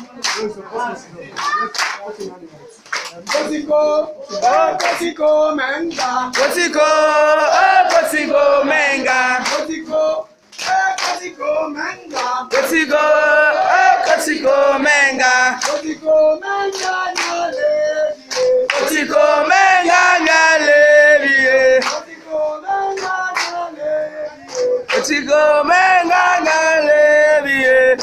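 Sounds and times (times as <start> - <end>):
hand claps: 0.2 - 0.5, 1.4 - 3.6, 4.3 - 6.7, 7.5 - 8.3, 9.1 - 9.9, 10.5 - 11.3, 12.0 - 12.8, 15.4 - 19.2, 21.7 - 23.7, 24.4 - 25.2
group singing and chanting: 3.1 - 28.0.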